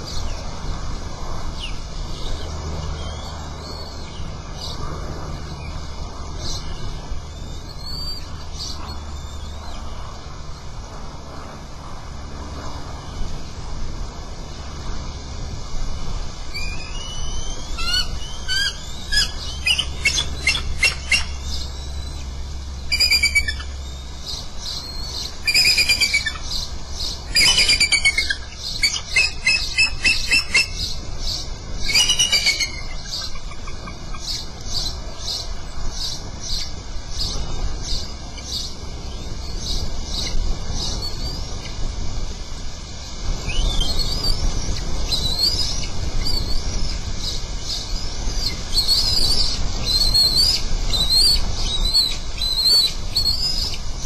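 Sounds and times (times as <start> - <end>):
eagles chittering piping calls: 31.9 - 34.3.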